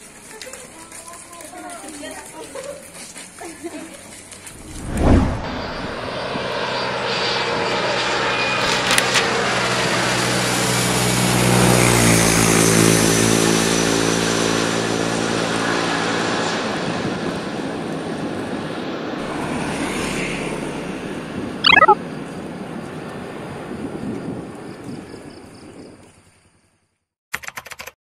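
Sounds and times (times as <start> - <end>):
engine passing by: 4.2 - 8.5, 9.2 - 16.6, 18.8 - 21.6.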